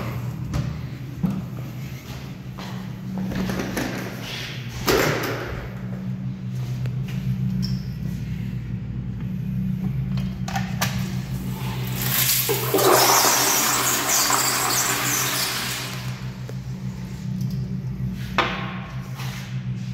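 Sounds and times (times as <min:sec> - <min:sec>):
steady low hum: 0:00.0 - 0:19.9
toilet flushing water rush: 0:11.4 - 0:16.5.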